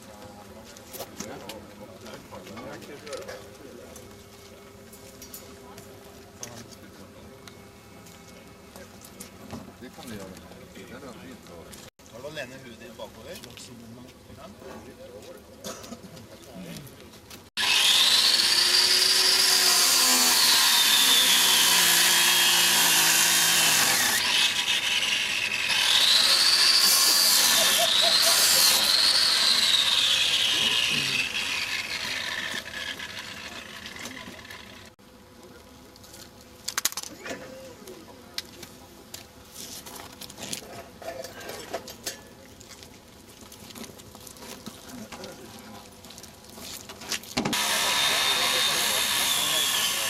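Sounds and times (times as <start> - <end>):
power tool whining: 17.6 - 35.0, 47.5 - 50.0.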